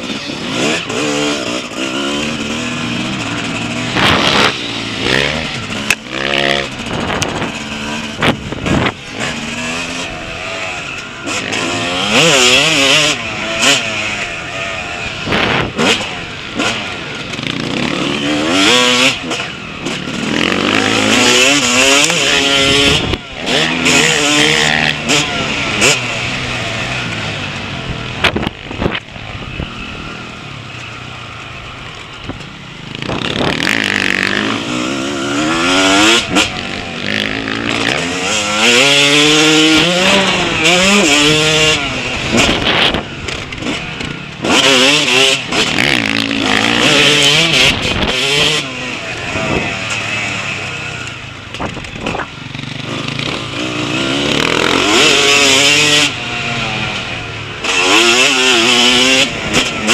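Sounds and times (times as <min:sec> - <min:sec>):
motocross engine revving: 0:00.0 - 0:59.9
wind on microphone: 0:32.2 - 0:34.4.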